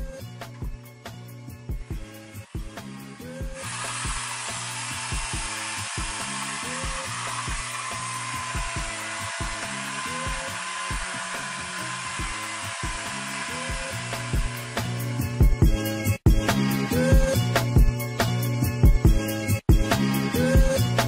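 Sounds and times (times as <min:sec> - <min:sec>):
background music: 0:00.0 - 0:21.0
small electric motor whirring: 0:02.0 - 0:16.2.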